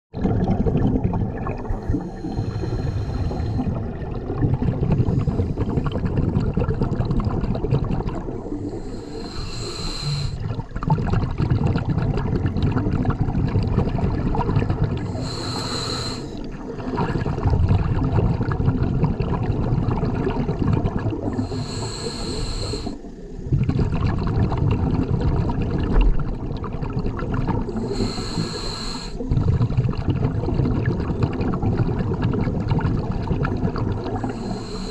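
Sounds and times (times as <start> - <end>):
exhaled bubbles rumbling: 0.1 - 34.9
hissing regulator inhale: 1.6 - 3.8, 4.8 - 6.2, 8.4 - 10.5, 15.0 - 16.9, 21.3 - 23.5, 27.6 - 29.3, 34.1 - 34.9.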